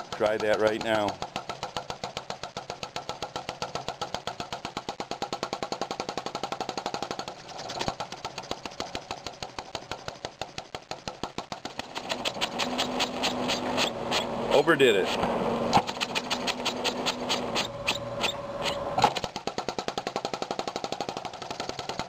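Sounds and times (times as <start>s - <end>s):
gas engine clicking rhythmically: 0.0s - 12.9s.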